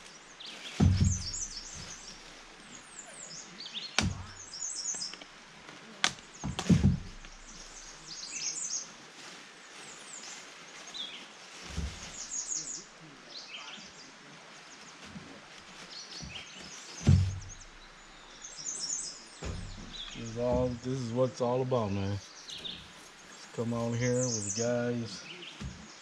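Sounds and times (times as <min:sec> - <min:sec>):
birds chirping and singing: 0:00.0 - 0:05.3, 0:06.2 - 0:08.9, 0:09.8 - 0:14.2, 0:15.9 - 0:26.0
dull thumps: 0:00.7 - 0:02.2, 0:04.0 - 0:04.4, 0:06.0 - 0:07.8, 0:16.2 - 0:18.0, 0:19.4 - 0:21.0.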